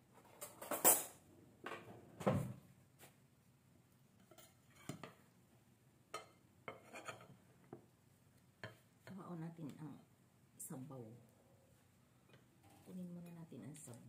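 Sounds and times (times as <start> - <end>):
metal utensils clattering on glass dish: 0.3 - 1.2.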